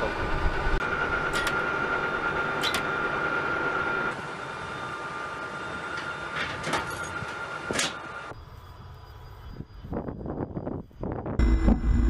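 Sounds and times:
high machine whine: 0:00.0 - 0:08.9, 0:09.6 - 0:12.0
airfield equipment hum: 0:11.4 - 0:12.0.

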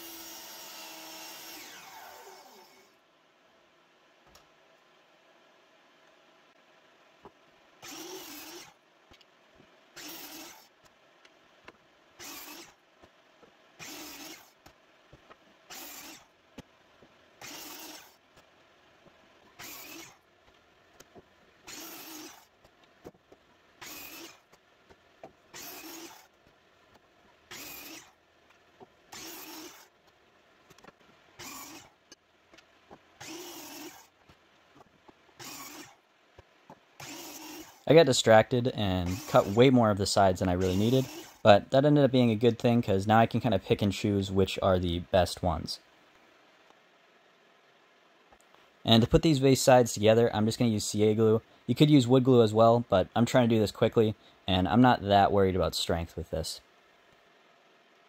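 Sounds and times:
miter saw cutting wood: 0:00.0 - 0:02.9, 0:07.8 - 0:08.8, 0:10.0 - 0:10.7, 0:12.2 - 0:12.8, 0:13.8 - 0:14.6, 0:15.7 - 0:16.3, 0:17.4 - 0:18.2, 0:19.5 - 0:20.2, 0:21.6 - 0:22.5, 0:23.8 - 0:24.5, 0:25.5 - 0:26.3, 0:27.5 - 0:28.2, 0:29.1 - 0:29.9, 0:31.4 - 0:32.0, 0:33.2 - 0:34.1, 0:35.4 - 0:36.0, 0:37.0 - 0:37.9, 0:39.0 - 0:39.8, 0:40.5 - 0:41.5.

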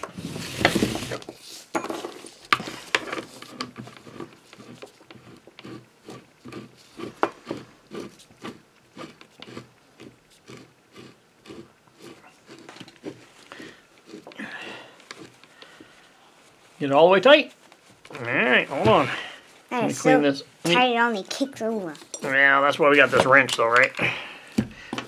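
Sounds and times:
handling rustle: 0:12.0 - 0:24.8.

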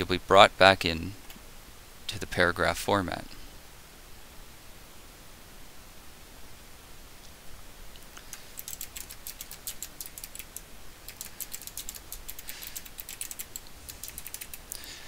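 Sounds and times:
typing on computer keyboard: 0:08.2 - 0:14.8.

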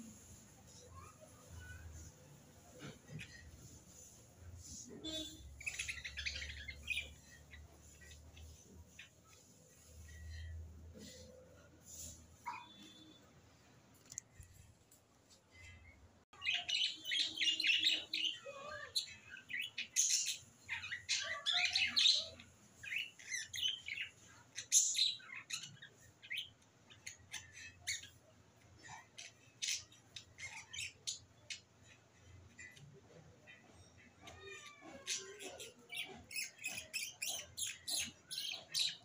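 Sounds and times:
small birds chirping: 0:00.0 - 0:14.6, 0:15.5 - 0:39.0.

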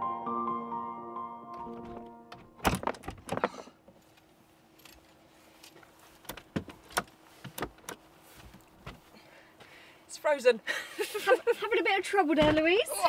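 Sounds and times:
background music: 0:00.0 - 0:02.4
faint steady hum: 0:01.6 - 0:13.0.

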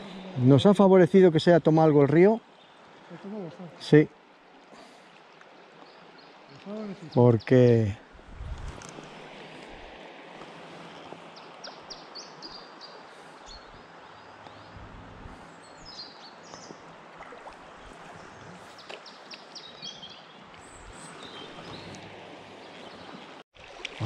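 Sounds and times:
small birds chirping: 0:11.4 - 0:16.9, 0:17.8 - 0:23.2
river water rushing: 0:16.0 - 0:24.0.

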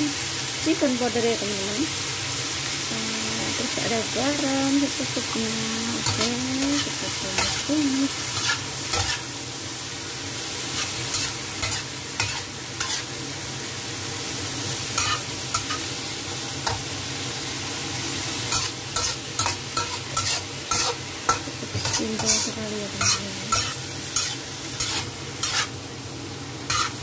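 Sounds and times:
food sizzling in a wok: 0:00.0 - 0:27.0
metal spatula scraping a pan: 0:08.3 - 0:09.3, 0:10.8 - 0:13.1, 0:15.0 - 0:15.8, 0:18.5 - 0:25.7, 0:26.7 - 0:27.0.

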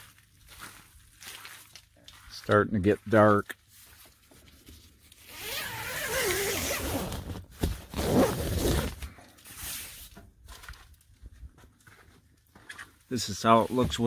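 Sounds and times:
tent zipper being pulled: 0:05.2 - 0:09.1.

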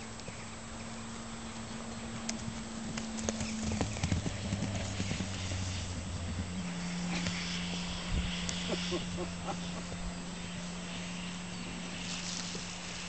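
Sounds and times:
steady low hum: 0:00.0 - 0:13.0
hoofbeats on grass: 0:01.4 - 0:08.9.

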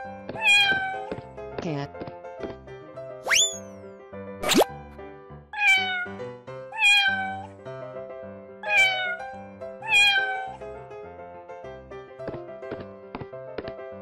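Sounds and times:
light background music: 0:00.0 - 0:14.0
cat meowing: 0:00.3 - 0:01.1, 0:05.6 - 0:07.5, 0:08.6 - 0:10.6.

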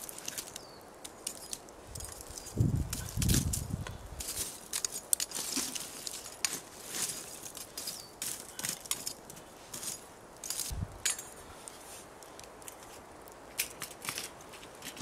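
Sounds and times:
campfire crackling: 0:00.0 - 0:15.0
metal tongs scraping charcoal: 0:00.0 - 0:15.0.

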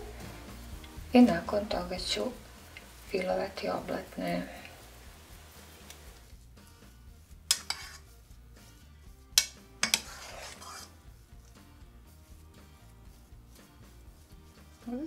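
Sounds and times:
metal spoon clinking on pot: 0:07.5 - 0:08.0, 0:09.4 - 0:10.9
spoon scraping through paste: 0:07.5 - 0:08.2, 0:09.8 - 0:11.2.

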